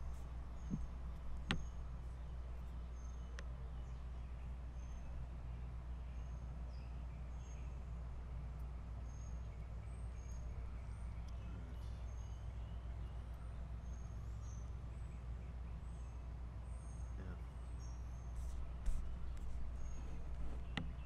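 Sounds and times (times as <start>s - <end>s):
birds chirping: 0.0s - 21.0s
steady low rumble: 16.6s - 21.0s.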